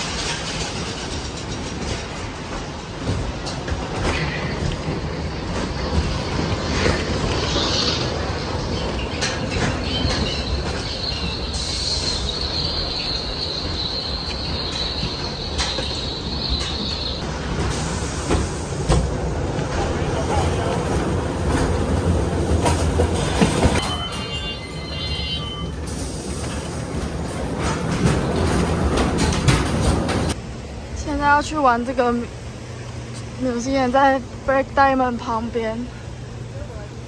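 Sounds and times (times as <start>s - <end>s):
rumble of wheels on rails: 0.0s - 37.0s
high wheel squeal: 6.9s - 17.2s, 23.2s - 26.2s.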